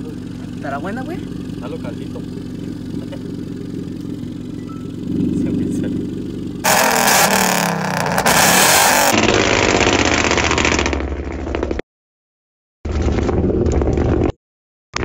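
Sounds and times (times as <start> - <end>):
car engine revving: 0.0 - 11.5
exhaust pops and bangs: 6.6 - 11.8.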